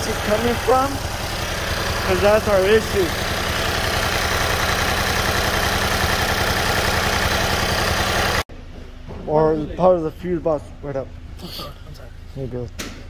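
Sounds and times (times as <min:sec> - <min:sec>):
car engine idling: 0:00.0 - 0:08.5.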